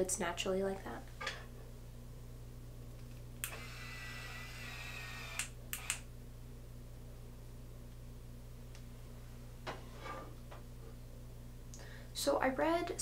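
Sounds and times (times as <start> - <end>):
curling iron motor whirring: 3.4 - 6.1
curling iron clicks: 5.2 - 6.1.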